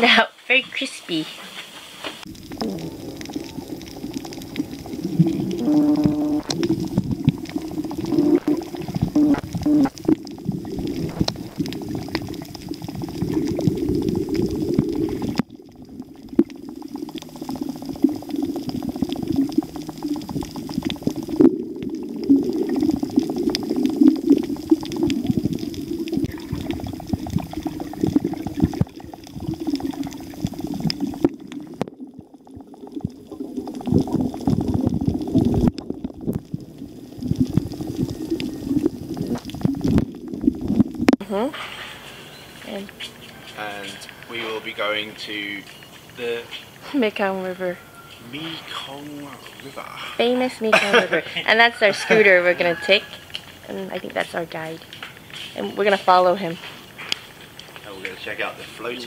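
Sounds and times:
sharp clicks underwater: 2.2s - 41.3s, 44.0s - 48.2s, 52.8s - 58.4s
muffled underwater rushing and bubbling: 2.2s - 43.4s.

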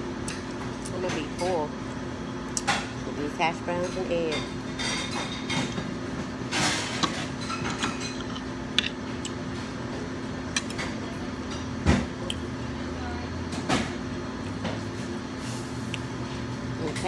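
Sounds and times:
steady background hum: 0.0s - 17.0s
dishes and cutlery clinking: 6.5s - 8.5s.

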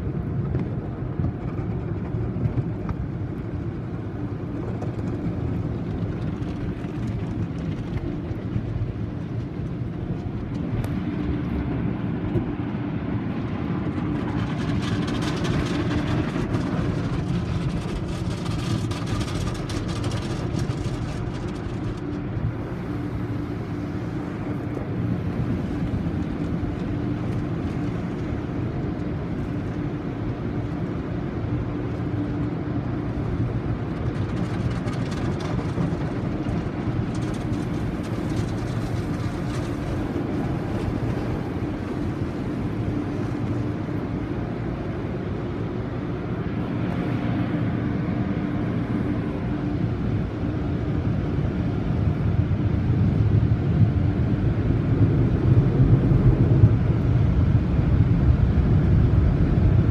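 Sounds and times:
water spraying on car: 0.3s - 45.2s.

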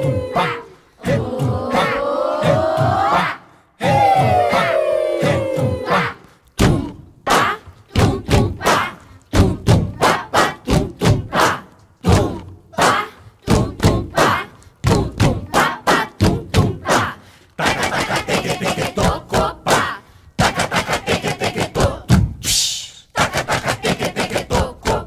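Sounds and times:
vocal syllables: 0.0s - 25.0s
body percussion thumps and slaps: 6.6s - 15.6s, 16.2s - 17.1s, 17.7s - 22.6s.

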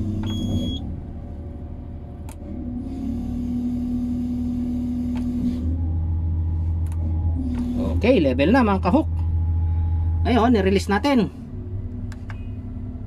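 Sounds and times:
low engine rumble: 0.0s - 13.0s
high electronic beep: 0.2s - 0.8s
hydraulic hum with hiss: 2.2s - 8.0s.

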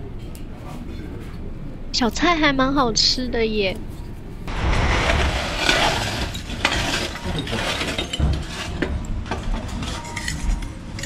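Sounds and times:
charcoal and metal clinking: 5.6s - 8.8s.

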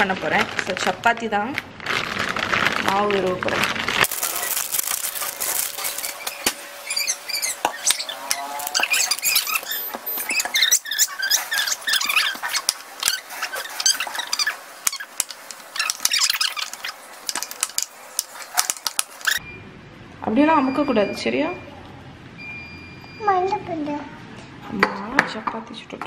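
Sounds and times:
dough squelching: 0.0s - 19.4s.

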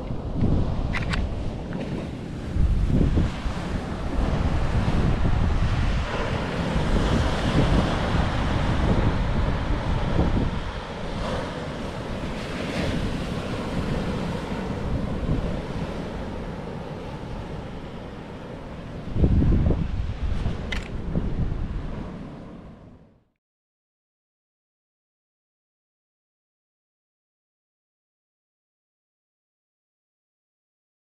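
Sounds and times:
surf breaking over rocks: 0.0s - 18.2s
wind buffeting microphone: 0.0s - 23.0s.

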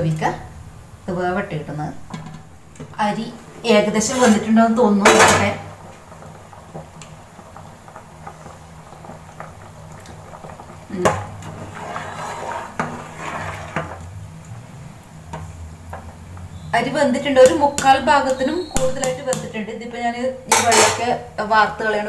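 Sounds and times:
bubbling water: 5.6s - 18.7s
spatula stirring rice in pot: 6.0s - 14.0s
spatula knocking on metal pot: 17.4s - 19.5s.

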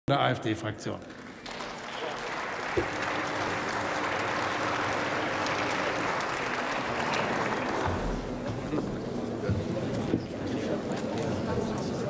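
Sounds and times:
people applauding: 1.0s - 9.0s.

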